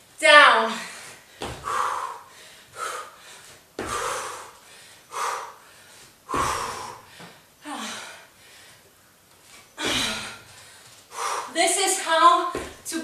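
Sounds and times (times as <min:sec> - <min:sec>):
woman breathing hard: 0:00.7 - 0:09.0, 0:09.7 - 0:11.6.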